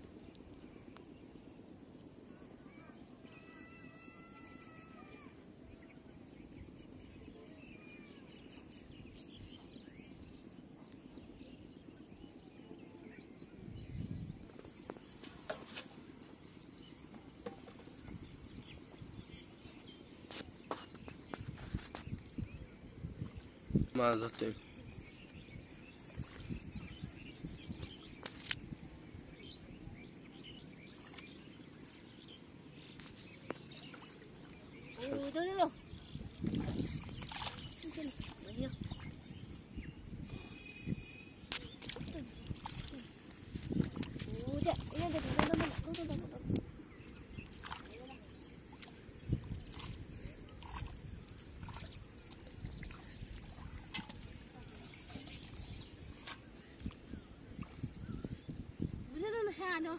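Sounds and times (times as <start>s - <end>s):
birds chirping: 2.1s - 59.9s
faint bird chirps: 29.2s - 45.2s.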